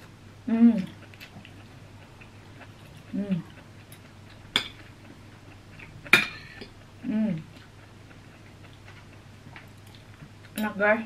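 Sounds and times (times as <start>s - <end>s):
cutlery clinking on plates: 6.1s - 6.7s
person humming while eating: 7.0s - 7.6s.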